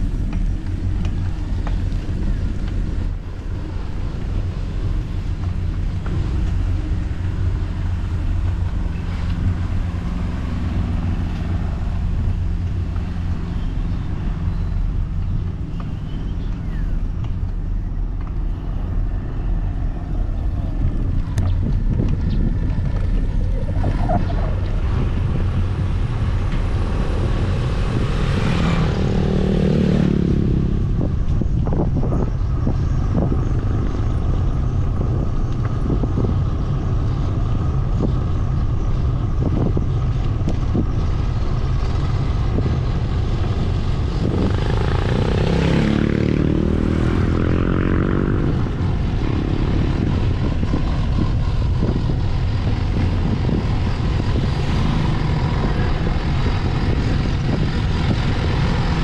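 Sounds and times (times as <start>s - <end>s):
wind rumble on microphone: 0.0s - 59.0s
vehicle engine passing: 18.7s - 31.8s, 41.9s - 59.0s.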